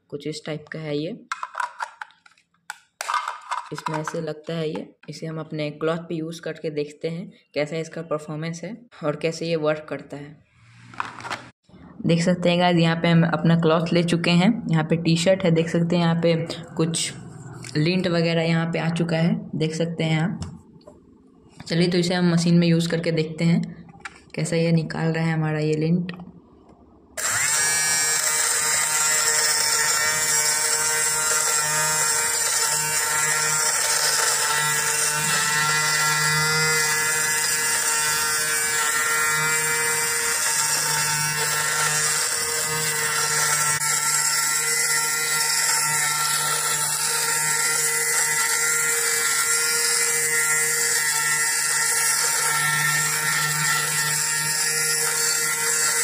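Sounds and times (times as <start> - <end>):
electric lint remover whine: 27.2 - 56.0.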